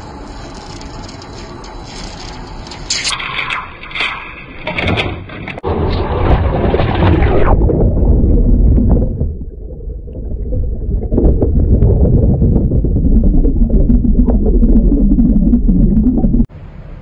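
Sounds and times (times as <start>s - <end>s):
muffled underwater rumble: 4.9s - 16.5s.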